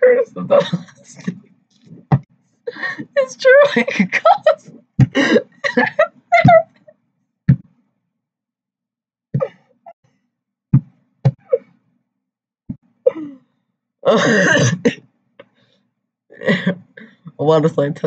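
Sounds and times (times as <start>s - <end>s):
girl laughing: 0.5s - 1.3s, 2.7s - 6.8s.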